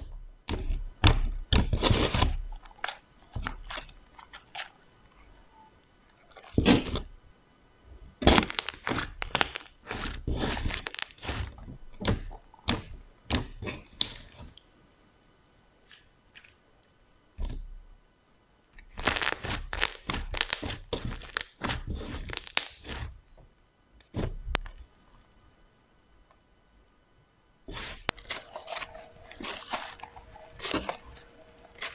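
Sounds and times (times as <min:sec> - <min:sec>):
slime crackling and popping: 0:08.2 - 0:14.2, 0:18.8 - 0:23.1, 0:27.7 - 0:31.9.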